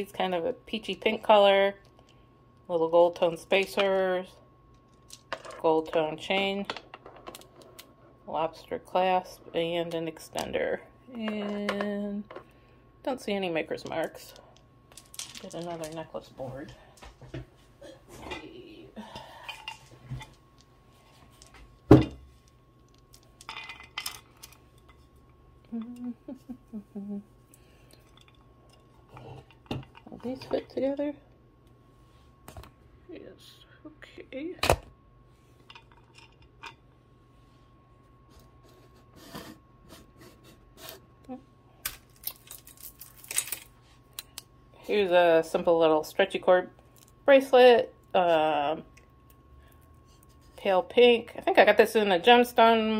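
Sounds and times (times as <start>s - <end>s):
jewelry and beads clinking: 13.9s - 16.2s.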